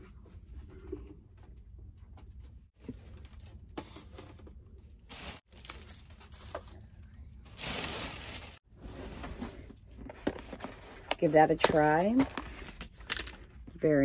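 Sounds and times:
plastic bag rustling and crinkling: 0:05.0 - 0:10.9.

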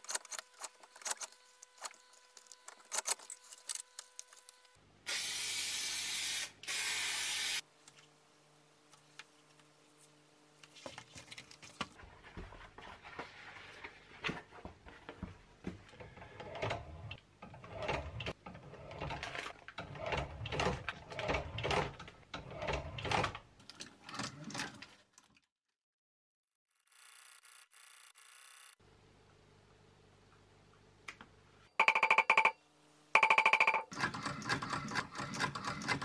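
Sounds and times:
sewing machine stitching leather: 0:16.1 - 0:24.8, 0:33.9 - 0:36.0.

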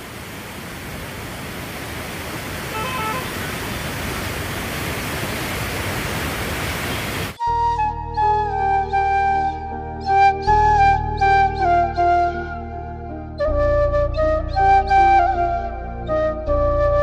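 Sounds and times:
turbulent floodwater rushing: 0:00.0 - 0:07.4
flute music: 0:02.7 - 0:03.3, 0:07.4 - 0:17.0.

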